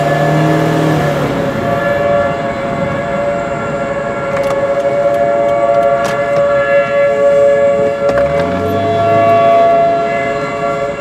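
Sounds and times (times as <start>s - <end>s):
car road noise: 0.0s - 11.0s
warning sirens holding chord: 0.0s - 11.0s.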